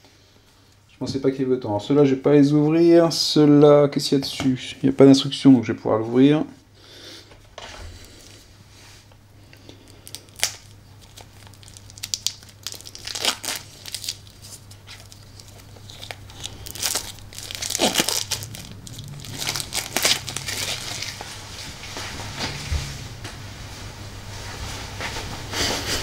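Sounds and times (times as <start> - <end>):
plastic shrink-wrap tearing and crinkling: 9.8 - 21.7.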